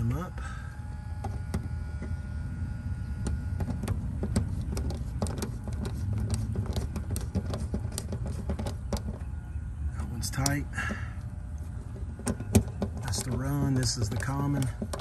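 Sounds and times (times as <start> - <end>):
steady low rumble: 0.0 - 15.0
screwdriver clicking on metal terminals: 12.2 - 15.0.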